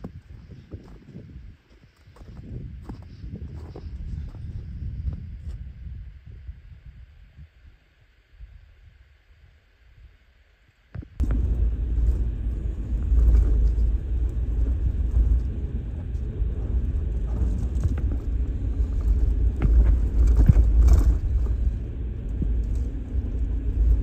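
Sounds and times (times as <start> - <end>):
vehicle rumbling while driving: 11.0 - 24.0.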